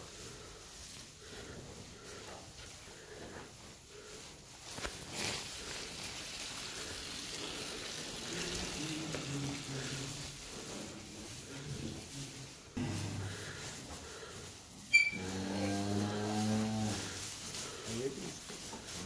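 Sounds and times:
cattle moving on straw: 0.0 - 19.0
steady hiss: 0.0 - 19.0.

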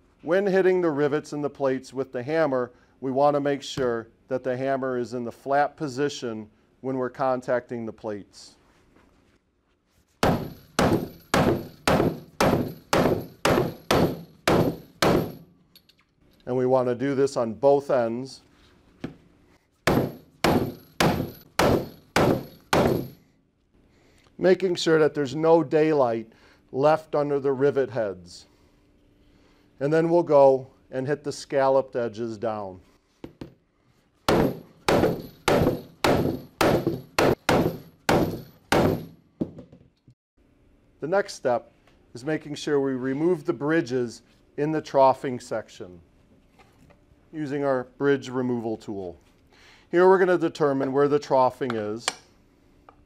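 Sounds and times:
hammer striking metal rivets: 10.2 - 16.0, 19.9 - 23.2, 34.3 - 39.2.

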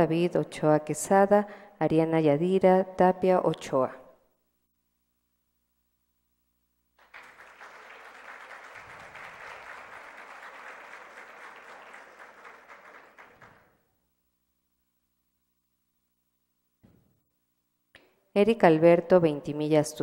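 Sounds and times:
audience applauding: 7.0 - 13.8.

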